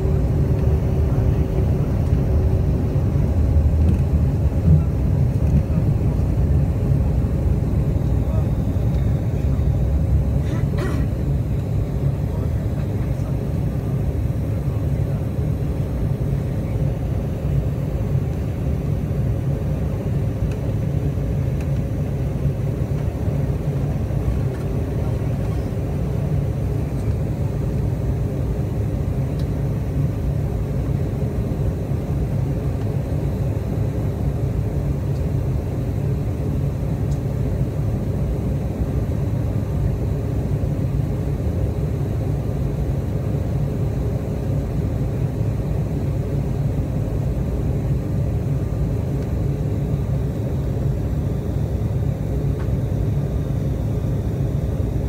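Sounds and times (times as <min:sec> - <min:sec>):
jet engines rumbling: 0:00.0 - 0:55.0.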